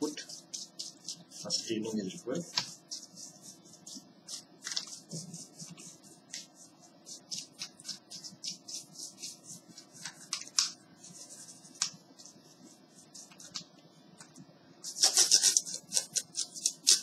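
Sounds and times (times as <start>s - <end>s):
brush scrubbing keyboard keys: 0.0s - 13.6s, 14.9s - 17.0s.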